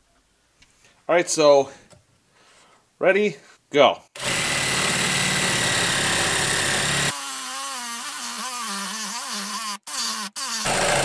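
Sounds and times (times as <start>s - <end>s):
hacksaw cutting steel pipe: 8.2s - 11.0s.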